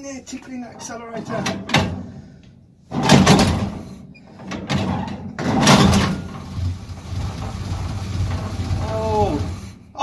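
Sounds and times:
engine firing in bursts: 5.6 - 9.8.

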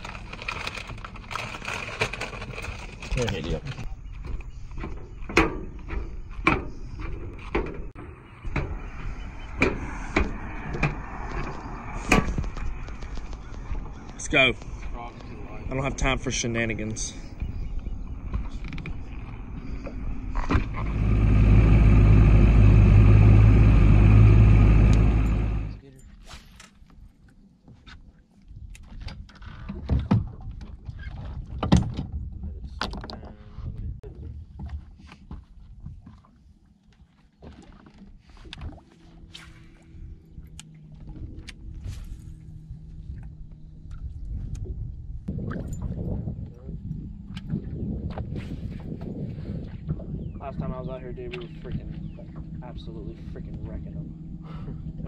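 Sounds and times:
wind and water rumble: 0.0 - 55.0
clog footsteps on dock ramp: 34.3 - 39.1.

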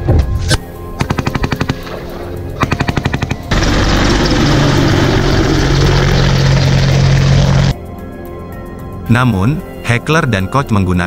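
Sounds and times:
helicopter passing close: 1.2 - 7.8.

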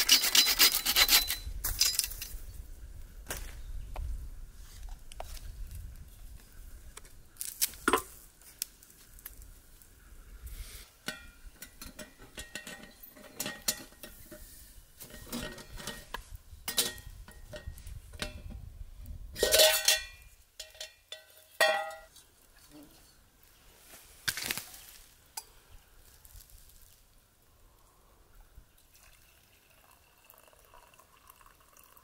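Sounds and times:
metal clatter: 0.0 - 2.4, 11.1 - 14.4, 19.4 - 22.1
metal cookware clinking: 11.1 - 14.4, 15.0 - 18.5, 19.4 - 22.1.

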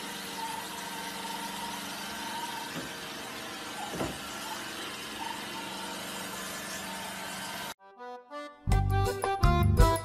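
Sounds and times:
robot vacuum cleaner running: 0.0 - 7.8.

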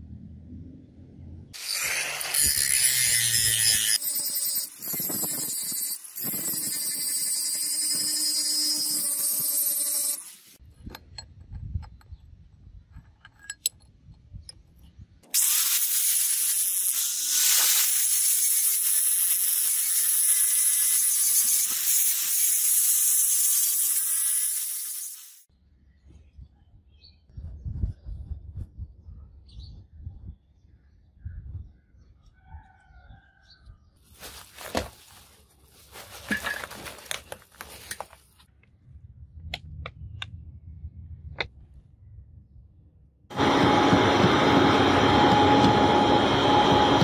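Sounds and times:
angle grinder grinding steel: 1.6 - 10.6, 15.4 - 25.4.

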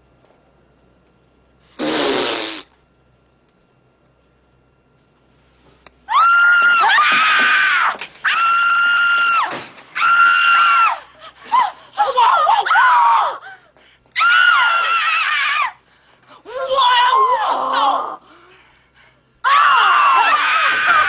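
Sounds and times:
women screaming: 6.1 - 13.4, 14.2 - 15.8, 19.4 - 21.0.

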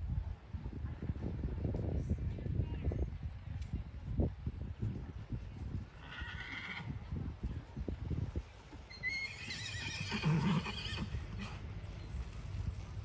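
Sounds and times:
horse whinnying: 6.0 - 6.9, 8.9 - 11.6.

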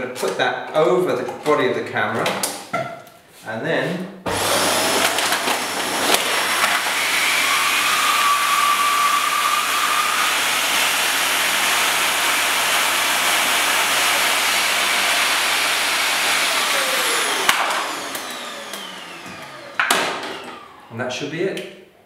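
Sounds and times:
vacuum cleaner running: 4.3 - 21.0.

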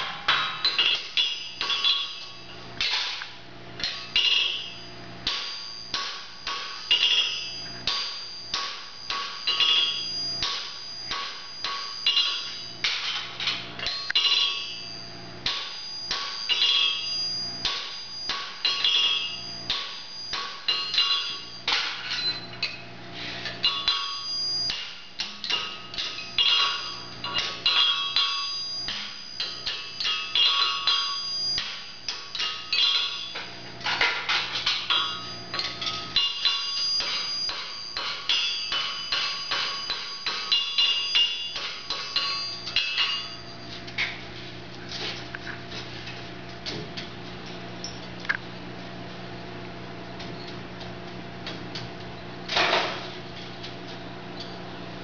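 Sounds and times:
hammer striking horseshoe on anvil: 0.0 - 22.8, 23.4 - 44.2
steady low hum: 0.0 - 55.0.

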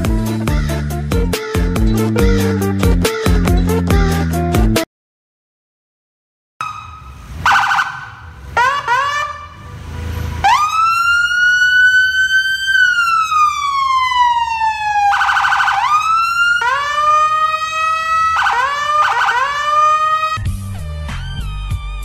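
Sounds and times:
harsh buzzing siren blast: 6.6 - 20.4
police siren: 6.6 - 20.5.

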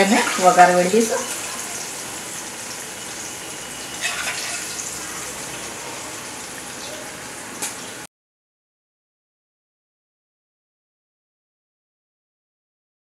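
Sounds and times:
hot oil sizzling: 0.0 - 8.1.

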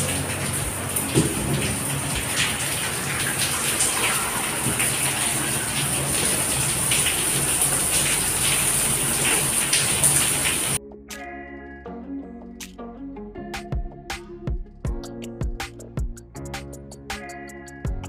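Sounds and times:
heavy rain pouring: 0.0 - 10.8
water gushing and splashing: 0.0 - 10.8.

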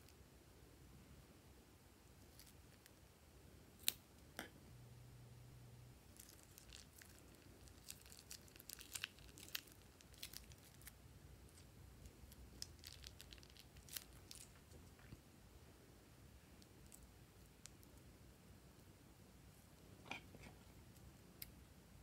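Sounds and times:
plastic piping bag crinkling: 6.1 - 15.2.

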